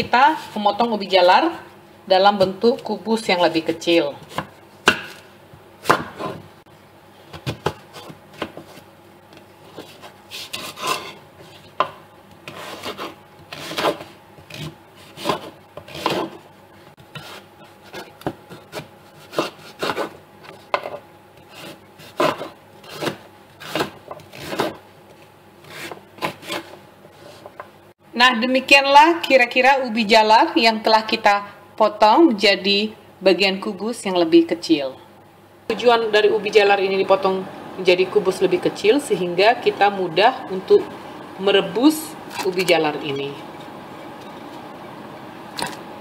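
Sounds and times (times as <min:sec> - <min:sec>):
knife cutting on wooden board: 0:12.4 - 0:16.4, 0:17.1 - 0:20.2, 0:21.4 - 0:24.8, 0:25.6 - 0:27.5.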